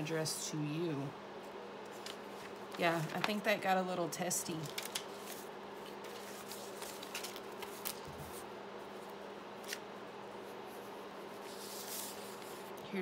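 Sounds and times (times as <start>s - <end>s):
steady low hum: 0.0s - 13.0s
paper sheets rustling: 1.9s - 3.6s, 4.4s - 9.8s, 10.4s - 12.8s.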